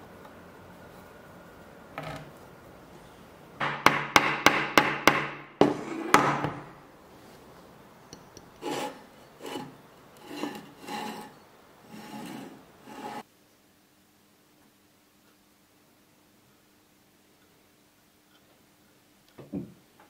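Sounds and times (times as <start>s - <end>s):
soft rubbing strokes on wood: 8.6s - 13.3s.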